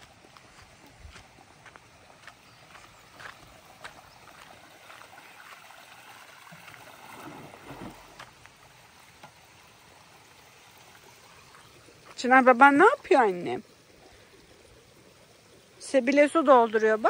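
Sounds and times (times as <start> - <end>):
faint trickling water: 0.0 - 17.0.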